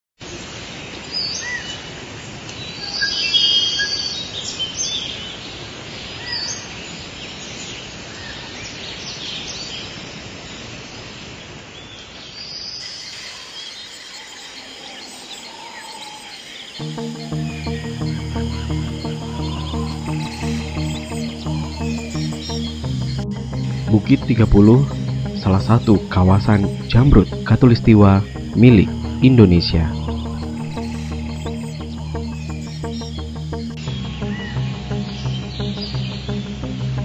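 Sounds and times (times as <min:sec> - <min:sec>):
birds chirping and whistling: 0:12.8 - 0:36.6.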